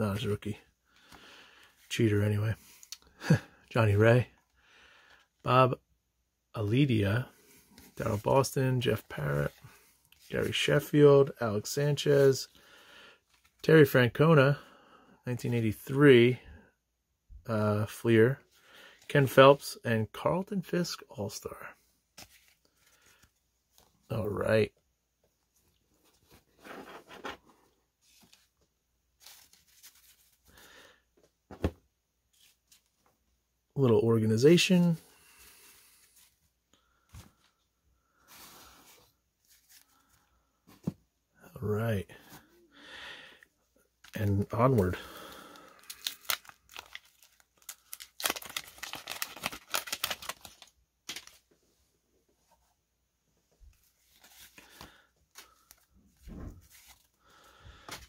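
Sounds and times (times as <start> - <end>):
paper cards rustling and sliding: 7.4 - 11.0, 22.1 - 24.0, 25.6 - 30.7, 32.3 - 33.1, 35.2 - 36.5, 38.2 - 41.0, 45.7 - 51.6, 53.7 - 57.2
wax paper wrapper tearing: 45.4 - 51.4.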